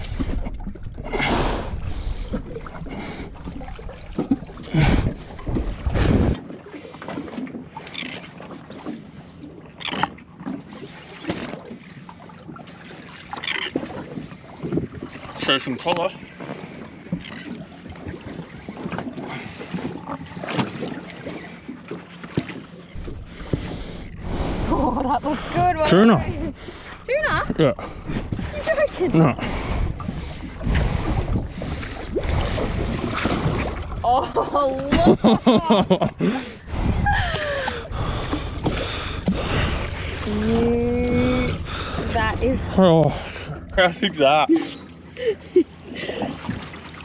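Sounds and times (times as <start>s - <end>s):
water washing against boat hull: 0.0s - 44.8s
wind buffeting microphone: 23.0s - 43.8s.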